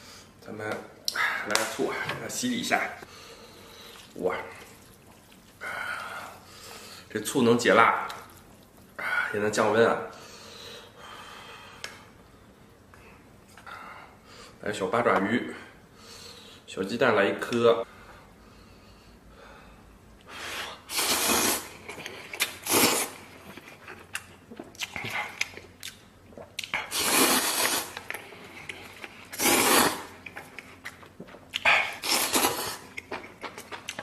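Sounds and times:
man slurping noodles: 20.7s - 23.3s, 26.8s - 28.0s, 29.2s - 30.2s, 31.7s - 32.9s.

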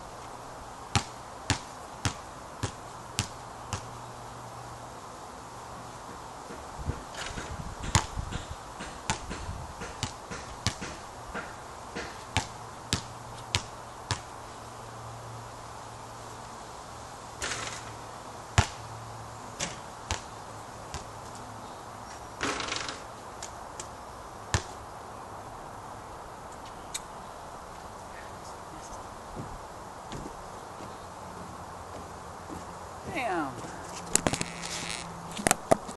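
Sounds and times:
basketball hitting hoop and bouncing: 0.9s - 3.9s, 6.5s - 14.3s, 17.4s - 17.9s, 18.6s - 18.8s, 19.6s - 20.3s, 22.4s - 23.0s
rustling: 32.5s - 35.9s.

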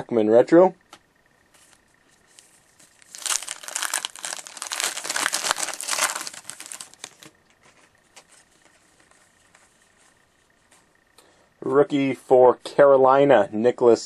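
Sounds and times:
card pack wrapper crinkling: 2.3s - 8.4s.

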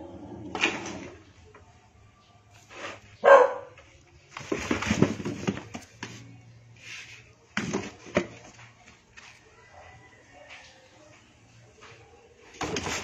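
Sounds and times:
cardboard rustling and scraping: 2.6s - 3.3s, 4.2s - 8.9s.

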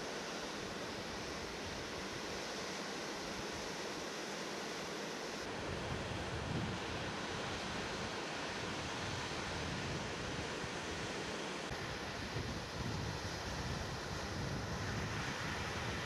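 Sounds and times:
wind rumbling on microphone: 5.6s - 11.1s, 11.7s - 16.0s.

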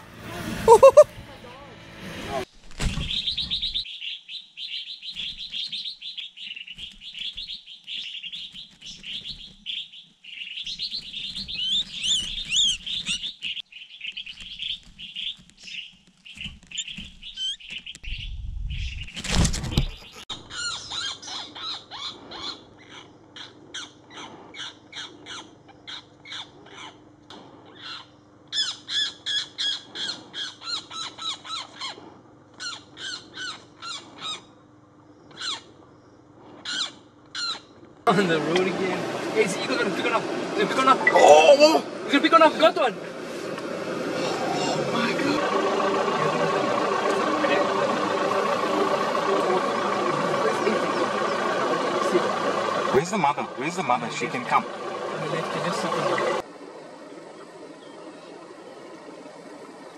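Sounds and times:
bird harsh calls: 0.7s - 1.1s, 3.0s - 19.2s, 19.8s - 27.0s, 44.1s - 56.4s
nestling distress chirping: 0.7s - 1.1s, 5.1s - 19.2s.

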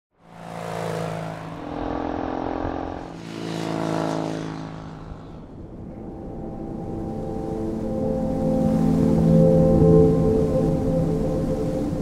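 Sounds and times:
motorcycle riding past: 0.2s - 6.2s.

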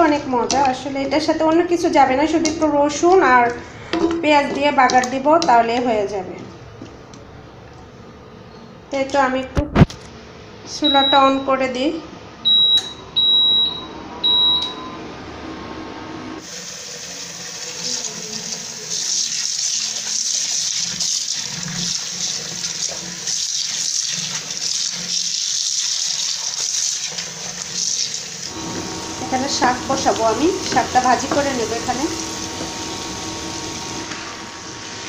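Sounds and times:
induction cooker beeping: 10.8s - 11.6s, 12.4s - 16.4s, 28.5s - 35.0s
tap water running onto greens: 17.8s - 34.2s.

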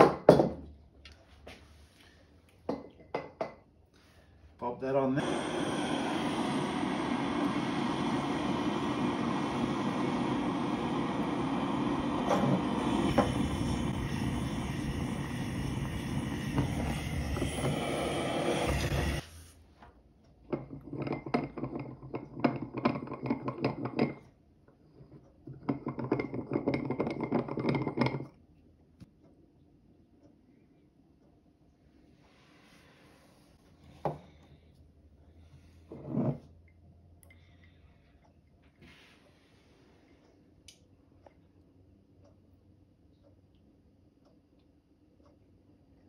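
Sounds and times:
butane torch flame: 4.6s - 19.6s.

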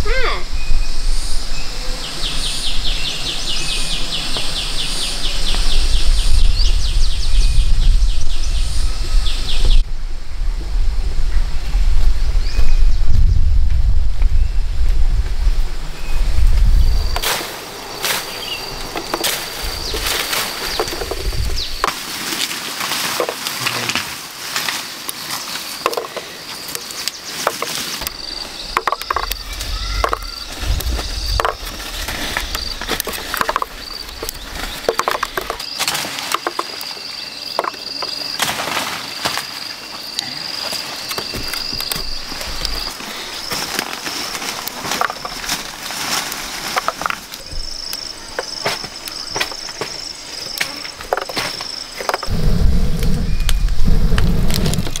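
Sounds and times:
low rumbles: 0.0s - 21.9s, 28.0s - 35.6s, 52.2s - 55.0s
insects buzzing: 0.0s - 55.0s
rustles and clicks: 16.4s - 37.0s, 40.6s - 55.0s.

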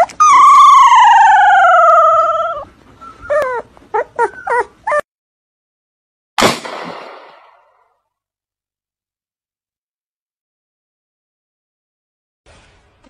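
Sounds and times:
puppy whimpering: 0.0s - 5.1s
puppy whining: 0.0s - 5.1s
sharp bang: 6.4s - 7.8s.

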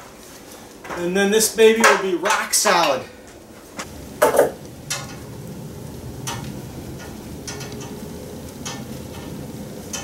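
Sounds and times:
low background noise: 0.0s - 10.0s
wood and hardware knocks: 4.2s - 4.6s.

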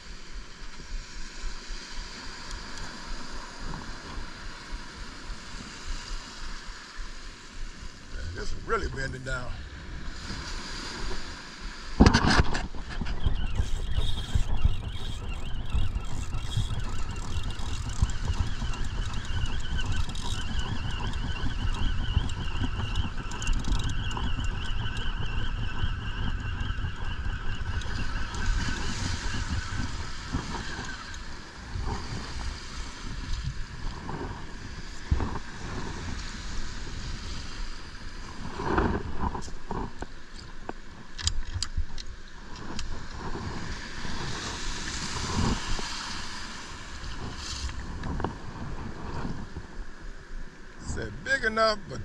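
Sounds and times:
wind buffeting microphone: 8.1s - 52.0s
fishing reel gears whirring: 12.8s - 33.6s.

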